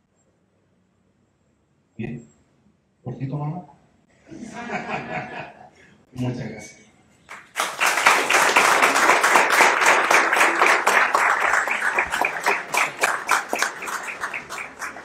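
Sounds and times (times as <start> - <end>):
audience applauding: 7.3 - 15.0.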